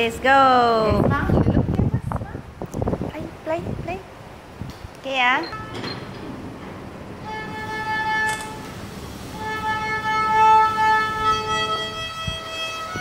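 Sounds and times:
child playing violin: 0:07.2 - 0:13.0.

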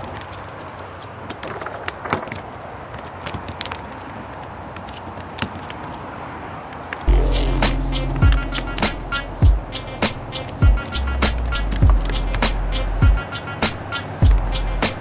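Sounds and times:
loud music: 0:07.1 - 0:11.7.

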